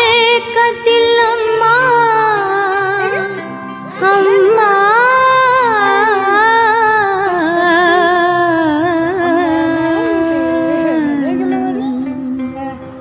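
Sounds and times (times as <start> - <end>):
high voice singing devotional song: 0.0 - 13.0
soft instrumental backing: 0.0 - 13.0.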